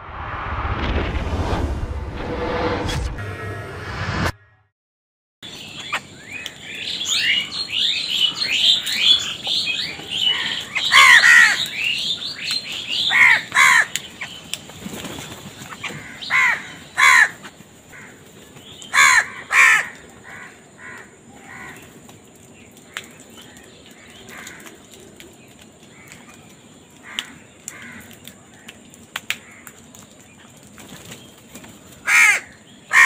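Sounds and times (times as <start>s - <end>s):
crows cawing: 7.2s - 12.3s, 12.9s - 14.2s, 15.7s - 22.0s, 24.0s - 24.9s, 27.0s - 28.8s, 29.4s - 29.8s, 32.0s - 33.0s.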